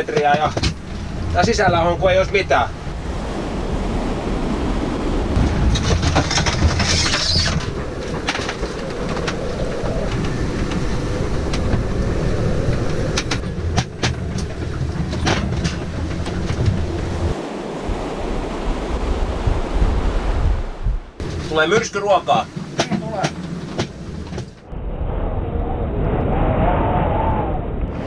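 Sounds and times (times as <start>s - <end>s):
waves against hull: 0.0s - 24.7s
gale wind rumble: 0.0s - 28.0s
clicks and knocks in cabin: 21.7s - 24.6s.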